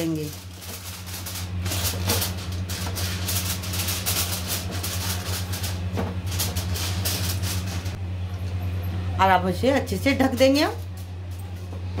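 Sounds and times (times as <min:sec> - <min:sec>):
aluminium foil crinkling: 0:00.0 - 0:08.0
steady low hum: 0:00.0 - 0:12.0.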